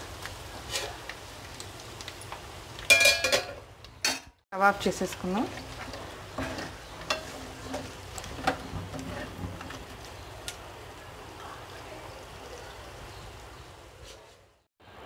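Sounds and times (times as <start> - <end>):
sizzling in hot pan: 0.0 - 13.9
metal spatula scraping pan: 0.6 - 1.0, 5.5 - 9.9.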